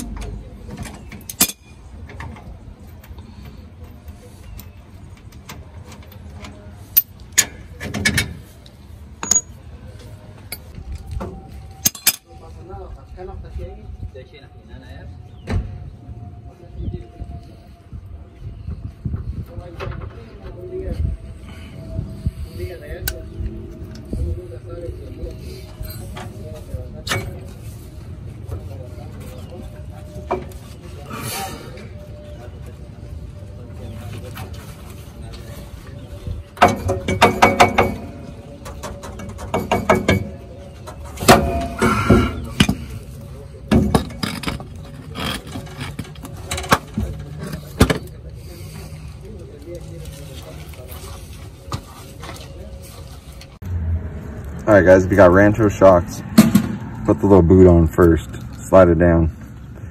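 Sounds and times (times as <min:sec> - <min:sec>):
wrench clinking on bolt: 0:09.2 - 0:09.6
steady low rumble: 0:47.2 - 0:59.9.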